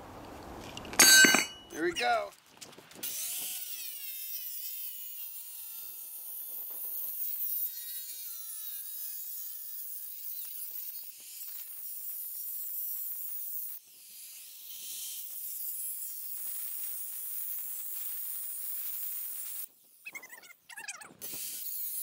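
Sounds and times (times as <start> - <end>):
angle grinder cutting metal: 1.0 - 2.1.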